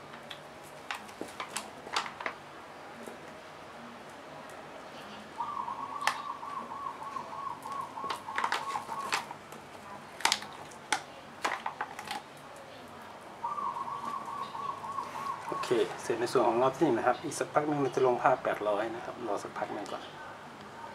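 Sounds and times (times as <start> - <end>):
bird calling with rapid high notes: 5.1 - 9.2, 13.4 - 16.4.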